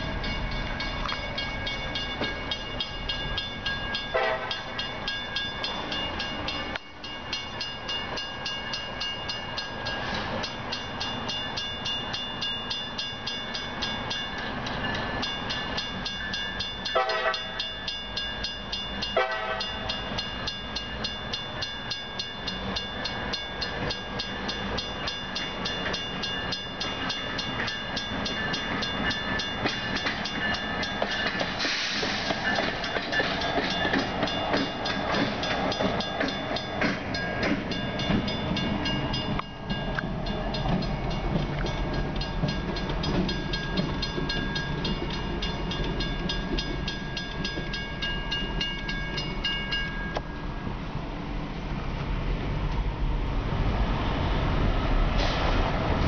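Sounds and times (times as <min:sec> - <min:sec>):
crossing bell ringing: 0:00.0 - 0:50.8
diesel locomotive rumbling: 0:00.0 - 0:56.0
train horn blasts: 0:04.1 - 0:04.8, 0:16.9 - 0:17.7, 0:19.2 - 0:19.9.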